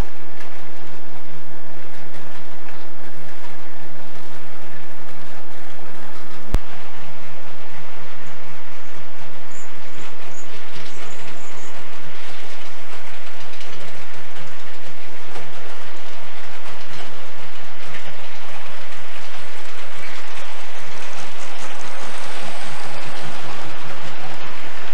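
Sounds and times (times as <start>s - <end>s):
wheels clicking on track: 0.0s - 24.9s
model train motor hum: 5.8s - 24.9s.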